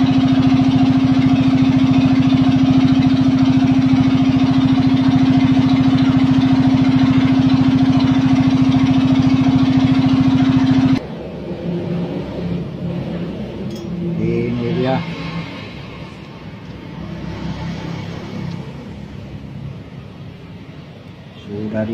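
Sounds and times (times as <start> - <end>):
arc welder droning: 0.0 - 11.0.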